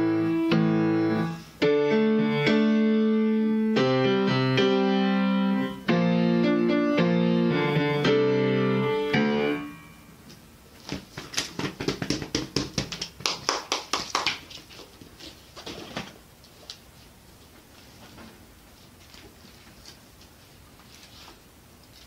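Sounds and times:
grand piano chords: 0.0 - 10.2
handclaps: 11.8 - 14.6.

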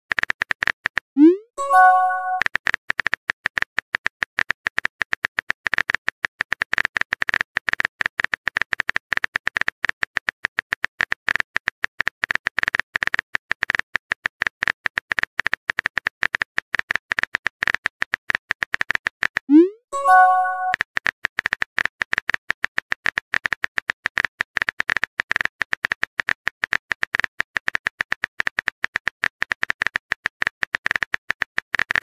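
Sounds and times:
keyboard typing clicks: 1.2 - 2.4, 19.5 - 20.8.

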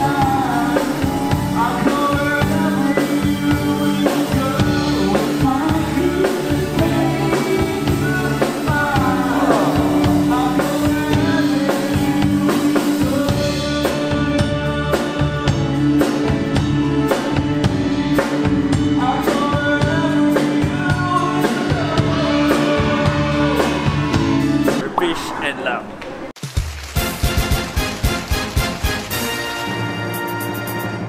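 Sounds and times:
live band music: 0.0 - 26.0
drum beat: 8.9 - 11.4.

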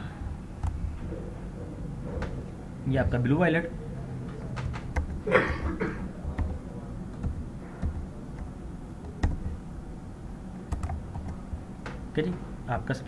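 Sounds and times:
low room hum: 0.0 - 13.0
computer mouse clicks: 0.6 - 0.9, 6.3 - 9.6, 10.7 - 12.0.

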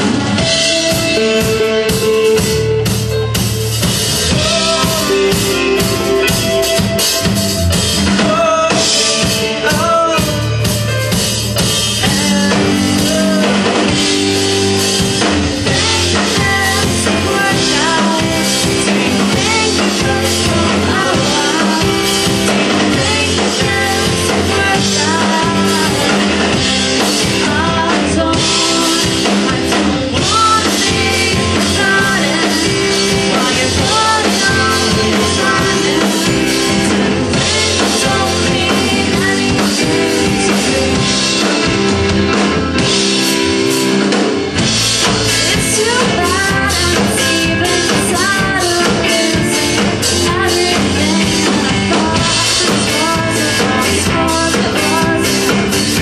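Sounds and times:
drum kit: 0.0 - 56.0
electric guitar: 0.0 - 56.0
man singing: 4.1 - 7.2, 7.9 - 11.2, 11.9 - 14.6, 15.5 - 41.7, 45.3 - 56.0.

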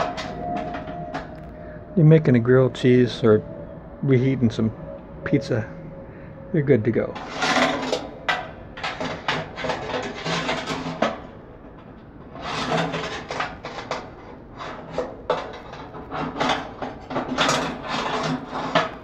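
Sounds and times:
wire rack scraping in toaster oven: 7.2 - 11.3, 12.3 - 19.0.

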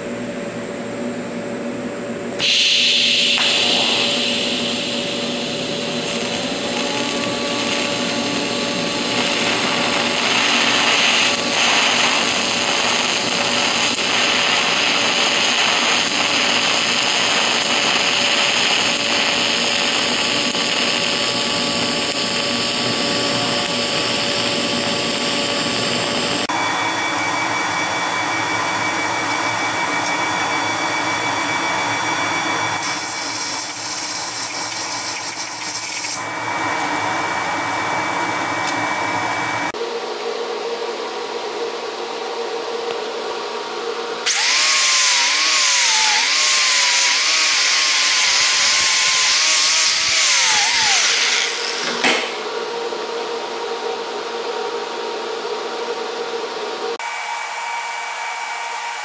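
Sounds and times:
fan whirring with high whine: 0.0 - 34.4, 36.2 - 59.0
welding arc hissing: 2.4 - 26.5, 32.8 - 36.3, 44.2 - 52.4.

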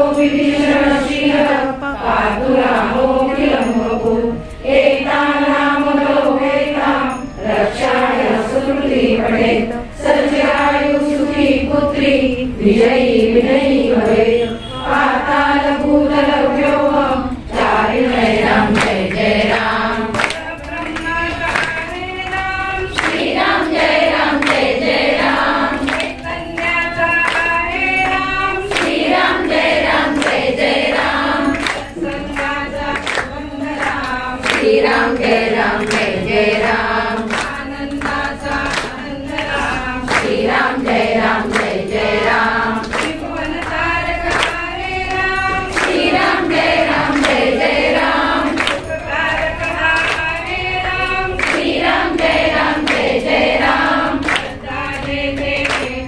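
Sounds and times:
women singing devotional song: 0.0 - 56.0
hand claps: 12.7 - 56.0.

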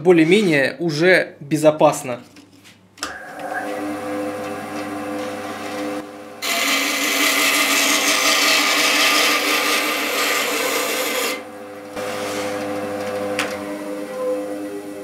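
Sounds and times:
band saw motor hum: 3.1 - 15.0
saw blade cutting wood: 6.4 - 11.4.

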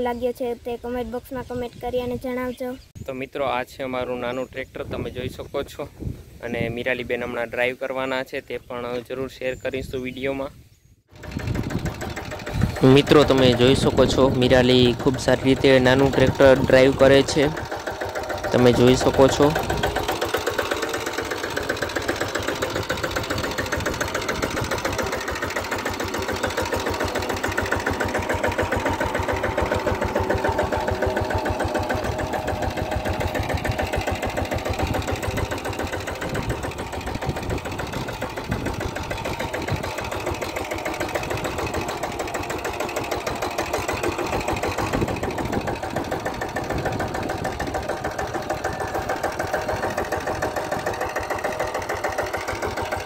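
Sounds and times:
tractor engine chugging: 11.1 - 53.0.

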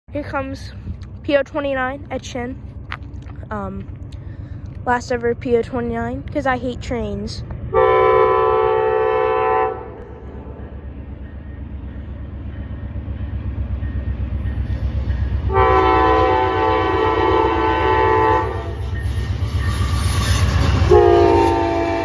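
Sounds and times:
diesel locomotive engine rumble: 0.1 - 22.0
multi-chime train horn: 7.8 - 10.0, 15.5 - 18.9, 20.8 - 22.0.

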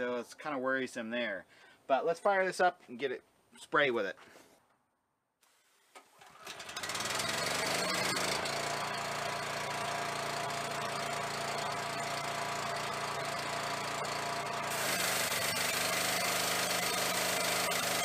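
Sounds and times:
pressure washer engine running: 6.4 - 18.0
high-pressure water spray hiss: 14.7 - 15.8.

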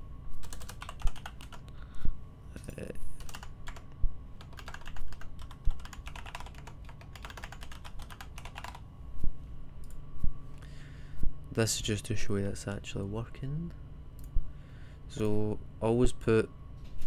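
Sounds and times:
typing on computer keyboard: 0.4 - 1.6, 3.2 - 3.8, 4.4 - 8.8.

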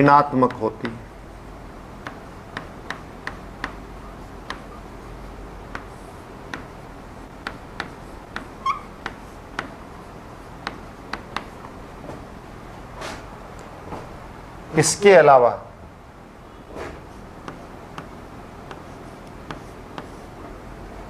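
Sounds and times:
chalk tapping on blackboard: 0.4 - 1.0, 2.0 - 4.9, 5.7 - 9.8, 10.4 - 11.8, 17.4 - 20.3
chalk squeak: 8.4 - 9.0.

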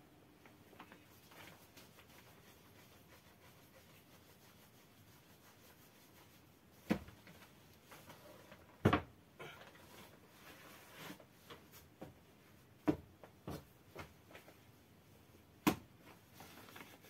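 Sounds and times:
dough rubbing between hands: 1.0 - 8.4.

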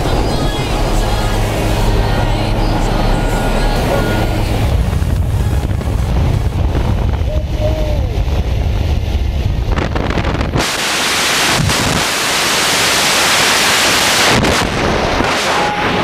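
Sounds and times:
wind buffeting microphone: 0.0 - 12.6
aircraft engine rumble: 0.0 - 13.0
rushing wind hiss: 4.6 - 16.0.

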